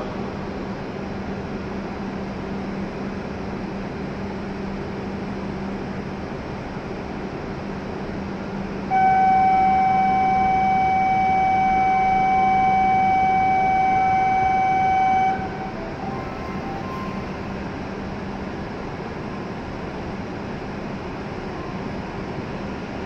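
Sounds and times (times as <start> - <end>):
station hum: 7.8 - 23.0
electronic warning tone: 8.9 - 17.5.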